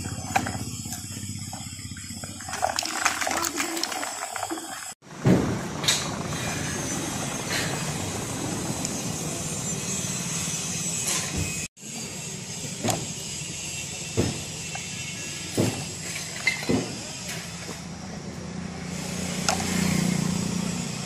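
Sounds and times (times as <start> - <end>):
toy tractor humming: 0.0 - 5.0
sharp knocks and clatters: 15.5 - 17.8.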